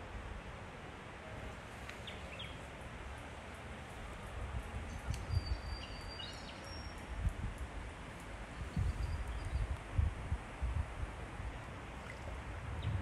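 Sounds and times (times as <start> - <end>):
steady rushing hiss: 0.0 - 12.9
thin high whistled bird call: 4.9 - 7.0, 8.7 - 9.7.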